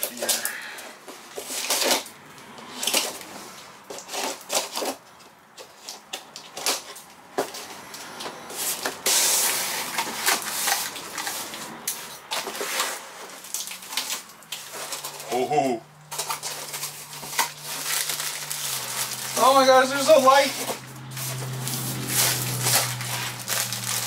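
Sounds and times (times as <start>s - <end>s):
cardboard box scraping and rustling: 6.6s - 15.5s, 16.1s - 24.0s.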